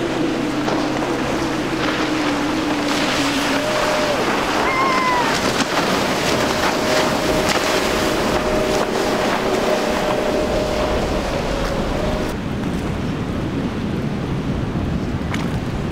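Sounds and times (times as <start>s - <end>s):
short pitched tone: 0.0s - 12.4s
outboard motor running at speed: 0.0s - 13.0s.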